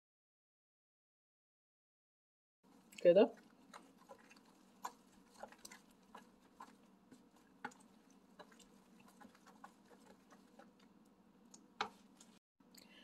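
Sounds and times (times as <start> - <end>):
wooden spoon tapping baking dish: 3.3 - 10.9, 11.5 - 12.1.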